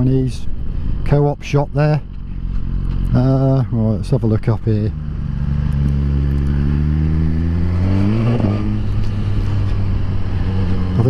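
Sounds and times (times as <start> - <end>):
motorcycle engine revving: 4.6 - 11.0.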